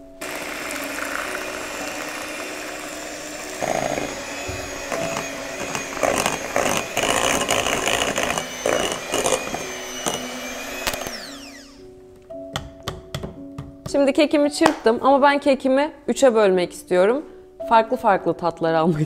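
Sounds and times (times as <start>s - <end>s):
electric mixer motor running: 0.2s - 11.9s.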